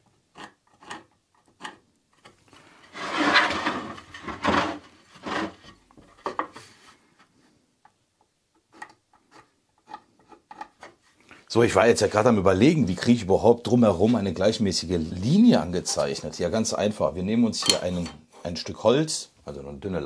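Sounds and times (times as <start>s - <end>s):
pencil scratching wood: 0.0s - 1.8s
wooden rubbing: 0.0s - 7.4s, 8.5s - 11.2s.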